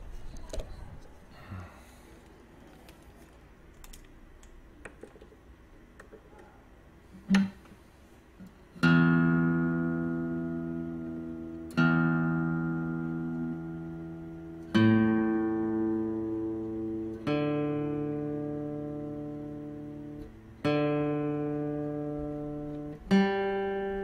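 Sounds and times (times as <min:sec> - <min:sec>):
acoustic guitar strummed chords: 0:08.8 - 0:24.0
plucked guitar note: 0:08.8 - 0:24.0.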